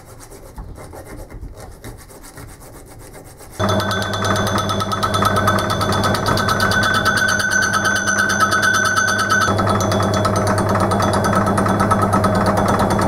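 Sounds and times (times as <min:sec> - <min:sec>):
lathe cutting whine with ticking: 0:03.6 - 0:13.0
lathe motor hum: 0:03.6 - 0:13.0.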